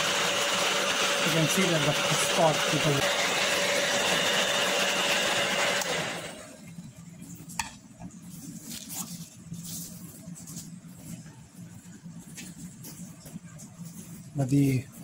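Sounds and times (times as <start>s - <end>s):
hair dryer blowing: 0.0s - 6.5s
paper towels rustling: 8.2s - 15.0s.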